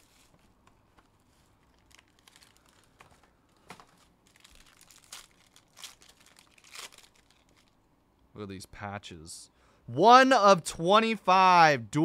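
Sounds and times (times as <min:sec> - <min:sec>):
plastic wrapper crinkling: 0:00.0 - 0:07.8.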